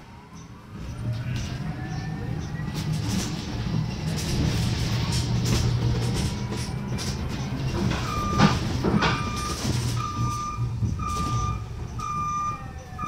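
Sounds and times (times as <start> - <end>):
bus engine rumbling hum: 0.0 - 13.0
electronic warning beeps: 8.0 - 13.0.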